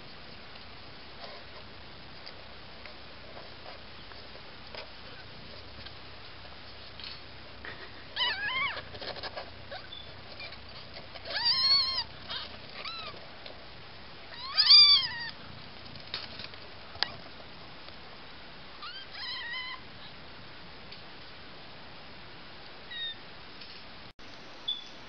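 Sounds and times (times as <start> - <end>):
kittens mewing: 7.7 - 13.2, 14.3 - 15.4.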